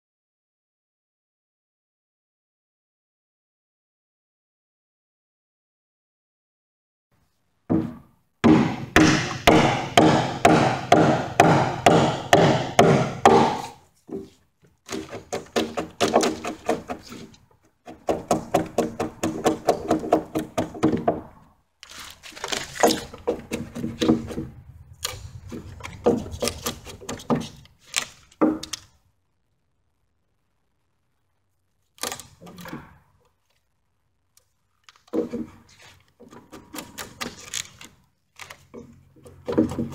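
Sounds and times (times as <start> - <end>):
axe chopping into wood: 7.8 - 13.7, 14.9 - 17.0.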